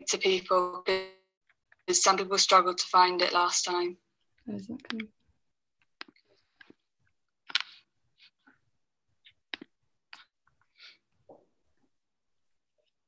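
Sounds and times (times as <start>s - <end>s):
clicks and light taps: 4.2s - 8.6s.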